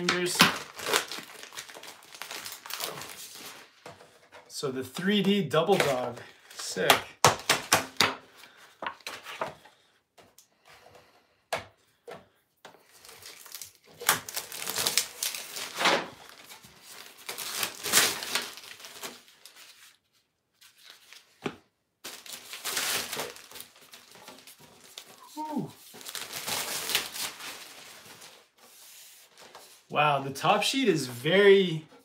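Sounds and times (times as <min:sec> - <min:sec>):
packaging wrapper crinkling: 0:00.0 - 0:03.8, 0:12.8 - 0:20.0, 0:22.0 - 0:28.5.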